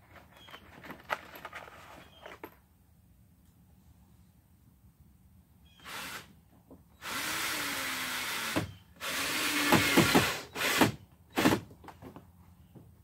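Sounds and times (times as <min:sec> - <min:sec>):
electric drill driving screw: 0:07.0 - 0:11.6.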